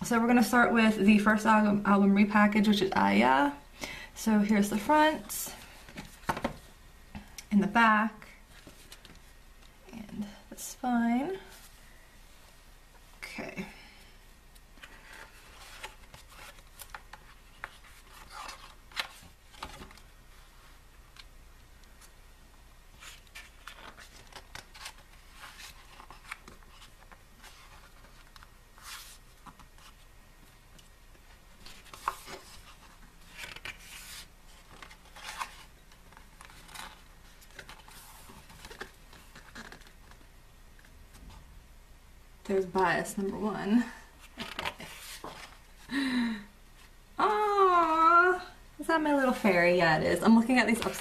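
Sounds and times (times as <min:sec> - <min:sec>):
pages turning and rustling: 0:14.8 - 0:20.1, 0:22.9 - 0:30.1, 0:30.7 - 0:41.4, 0:44.2 - 0:45.7, 0:50.7 - 0:51.0.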